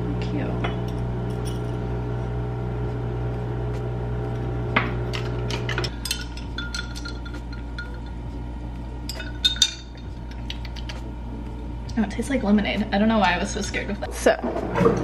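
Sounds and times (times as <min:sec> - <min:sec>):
laundry machine hum: 0:00.0 - 0:15.0
metal straw clinking against glass: 0:05.7 - 0:08.3, 0:09.1 - 0:10.5.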